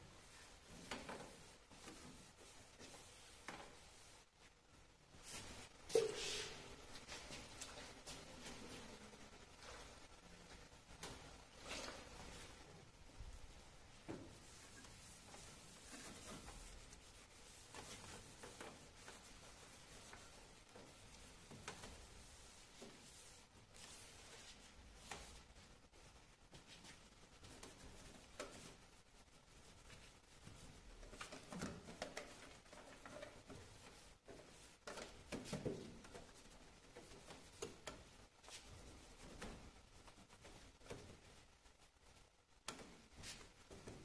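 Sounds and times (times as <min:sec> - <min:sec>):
cloth wiping metal: 0:00.2 - 0:04.4, 0:14.1 - 0:41.9
cloth rubbing on metal tray: 0:14.3 - 0:25.4.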